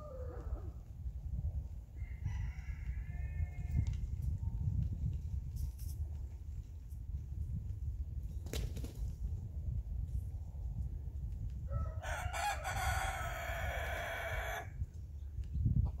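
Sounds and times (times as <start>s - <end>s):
rooster crowing: 2.0s - 3.9s, 11.7s - 14.7s.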